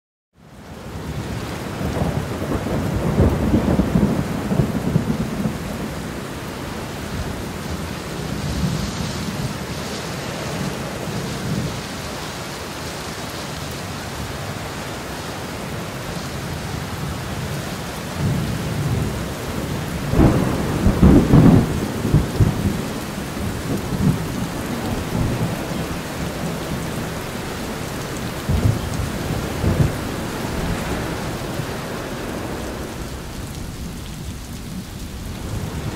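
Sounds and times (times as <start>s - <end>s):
rain on foliage: 0.4s - 35.9s
thunder rumbling: 1.1s - 9.7s, 18.2s - 35.9s.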